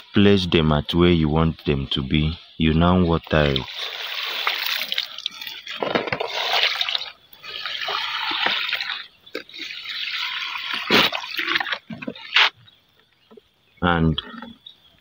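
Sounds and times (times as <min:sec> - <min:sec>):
water pouring onto soil: 0:03.3 - 0:12.5
plastic containers knocking: 0:05.8 - 0:06.4.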